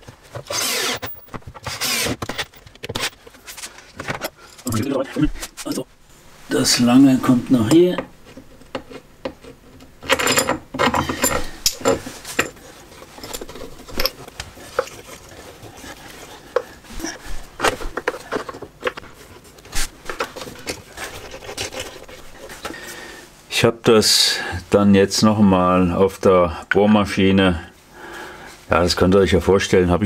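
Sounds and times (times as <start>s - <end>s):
clicks and knocks of parts handled: 7.9s - 15.3s.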